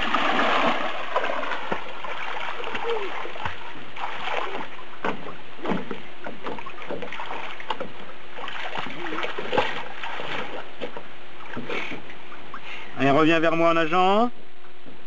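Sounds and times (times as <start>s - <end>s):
child splashing water: 0.0s - 12.6s.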